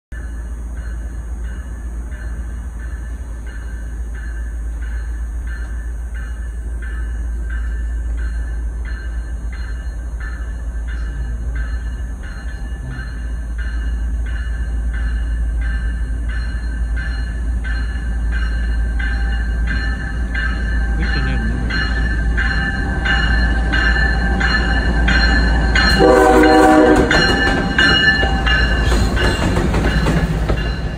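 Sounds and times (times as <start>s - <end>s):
diesel locomotive rumbling: 0.1s - 30.9s
locomotive bell ringing: 0.1s - 30.9s
locomotive horn blast: 25.9s - 27.5s.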